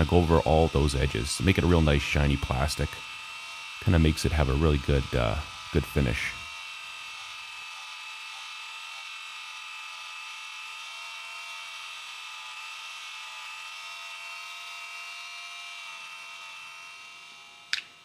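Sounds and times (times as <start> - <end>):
rotary tool motor whine: 0.0 - 18.0.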